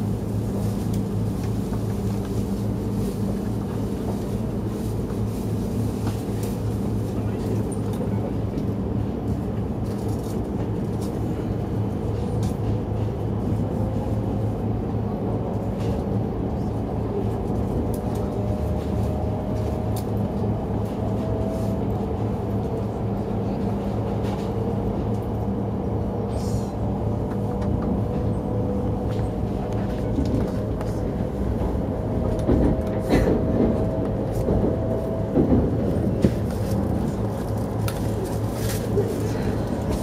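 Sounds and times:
train cabin rumble and hum: 0:00.0 - 0:40.0.

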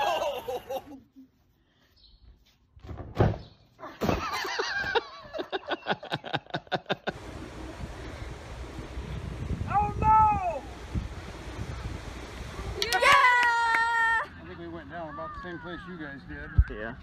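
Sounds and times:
excited voices crying out: 0:12.8 - 0:14.4.

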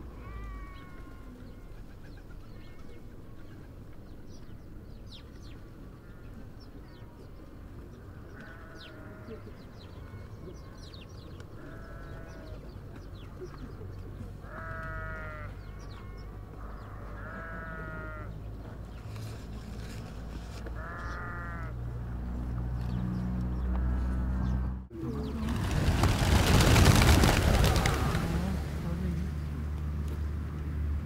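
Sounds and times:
loud rushing noise: 0:25.4 - 0:28.8.

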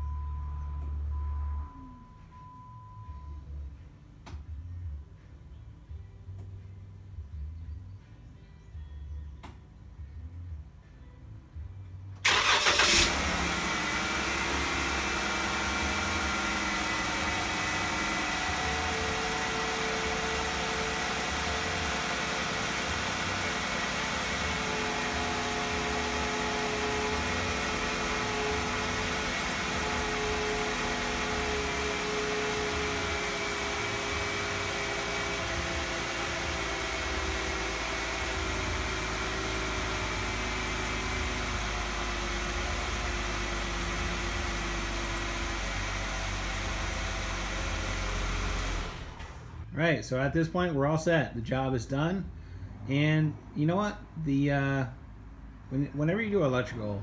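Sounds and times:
car engine cranking and idling: 0:00.0 - 0:05.1, 0:12.1 - 0:50.9.

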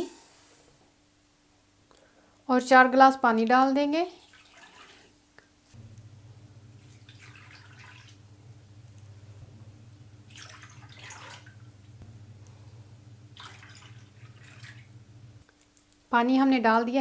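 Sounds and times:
water pouring and splashing: 0:04.2 - 0:05.2, 0:06.7 - 0:08.4, 0:10.2 - 0:12.0, 0:13.3 - 0:15.0
steady low hum: 0:05.6 - 0:15.5.

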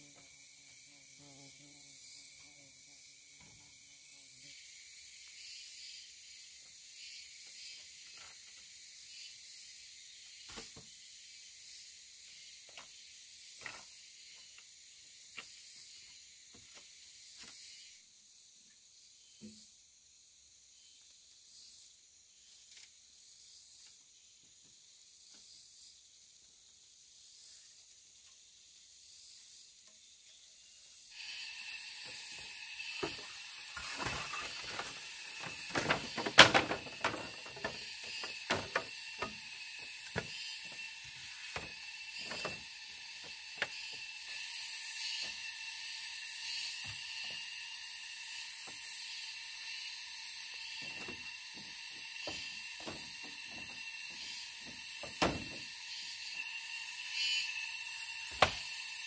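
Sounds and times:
insects droning: 0:00.0 - 0:59.0
bamboo poles knocking: 0:33.0 - 0:40.8, 0:50.8 - 0:53.7.

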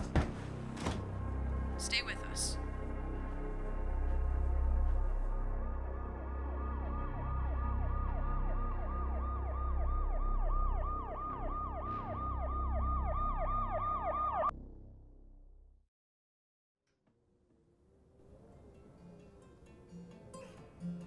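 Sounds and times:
low pulsing drone: 0:02.5 - 0:15.1
siren yelping: 0:05.4 - 0:14.5.

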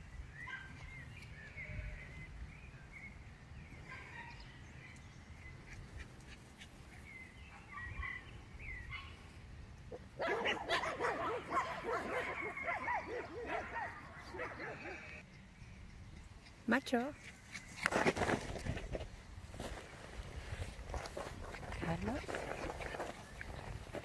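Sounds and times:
faint high chirping calls: 0:00.1 - 0:17.8
small dogs barking: 0:07.4 - 0:09.2, 0:09.9 - 0:15.2.

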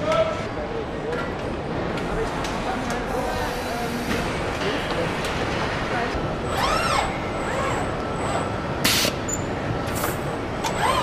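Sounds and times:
robot servo drives whining: 0:10.6 - 0:11.0.

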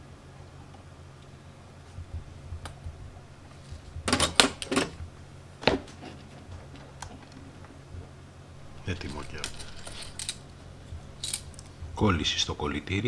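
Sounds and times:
steady low hum: 0:00.0 - 0:13.0
soldering iron clattering in stand: 0:04.0 - 0:05.0.

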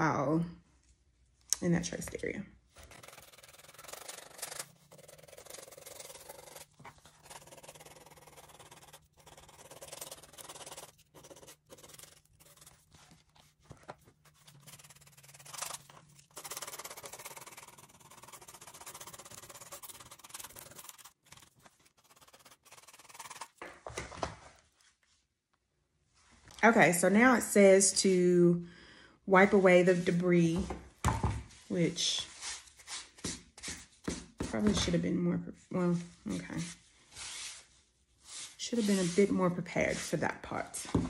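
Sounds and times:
hand file rasping on shoe sole: 0:02.8 - 0:12.8.

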